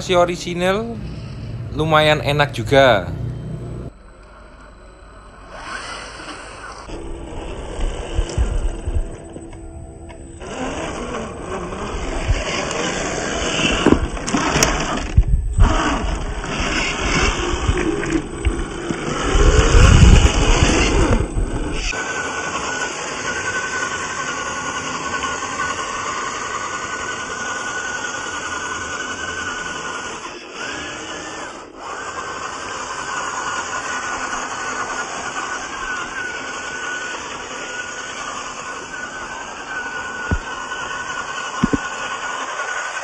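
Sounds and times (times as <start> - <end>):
loud low rumble: 0.0 - 4.2
electric motor and gears whining: 0.0 - 43.0.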